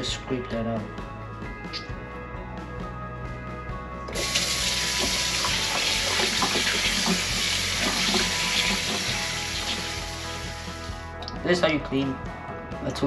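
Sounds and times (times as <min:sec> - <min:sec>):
faucet water running into sink: 0:04.1 - 0:11.0.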